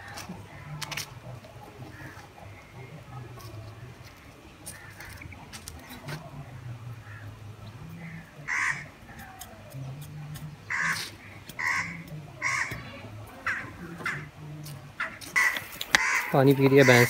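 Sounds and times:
bird harsh calls: 7.0s - 10.0s, 10.6s - 14.4s, 15.0s - 17.0s.

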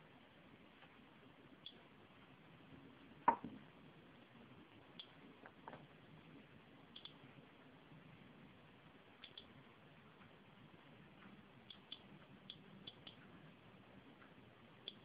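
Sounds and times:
radiation detector clicks: 1.6s - 1.8s, 5.0s - 5.6s, 6.9s - 7.2s, 9.2s - 9.6s, 11.1s - 13.4s, 14.2s - 15.0s.

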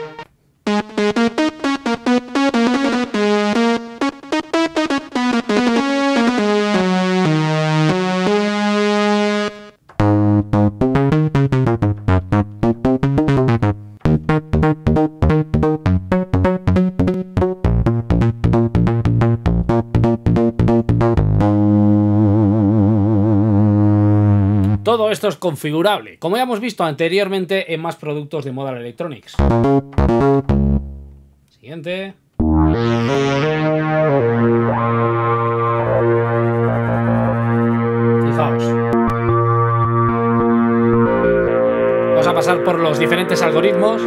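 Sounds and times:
deep bass synthesizer notes: 0.0s - 24.9s, 29.4s - 31.4s, 32.4s - 44.0s
held wavering synthesizer tone: 32.4s - 44.0s
synthesizer quick bright notes: 32.4s - 44.0s.

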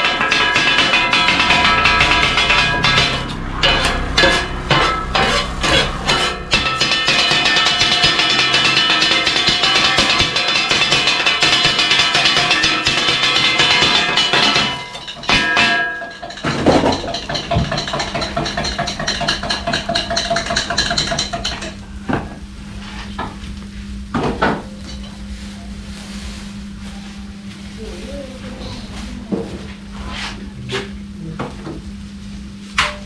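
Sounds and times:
low hum: 0.0s - 9.3s
metal blades clanging on griddle: 0.0s - 22.0s.

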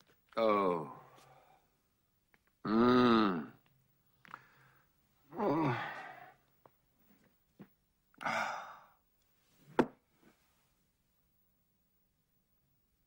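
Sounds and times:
man sighing: 5.3s - 6.4s, 8.2s - 9.0s.

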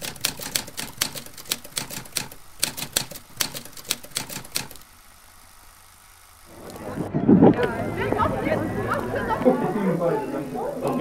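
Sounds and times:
typewriter keys clacking: 0.0s - 4.8s.

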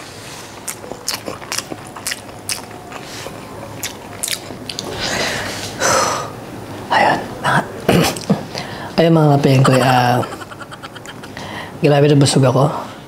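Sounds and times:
person chewing food: 0.2s - 5.7s.

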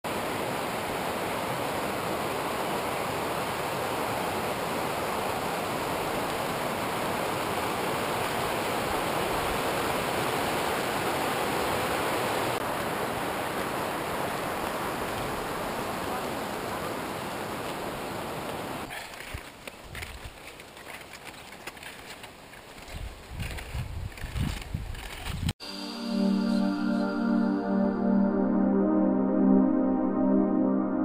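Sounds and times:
stream rushing over rocks: 0.1s - 19.5s.

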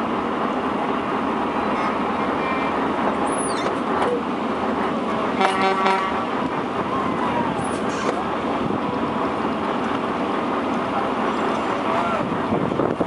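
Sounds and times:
truck engine and road noise: 0.0s - 13.0s
vehicle horn toot: 5.4s - 6.2s.

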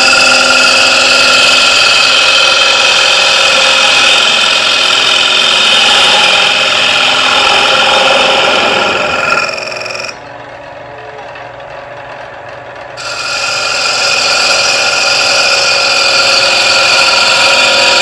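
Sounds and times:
gouge cutting wood on a lathe: 0.0s - 10.2s, 13.0s - 18.0s
lathe humming: 0.0s - 18.0s.

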